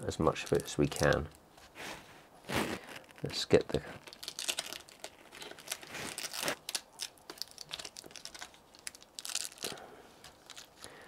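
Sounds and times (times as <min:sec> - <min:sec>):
small crackles and clicks: 0:00.3 - 0:01.4, 0:02.9 - 0:11.0
plastic sheet crinkling: 0:02.4 - 0:11.0.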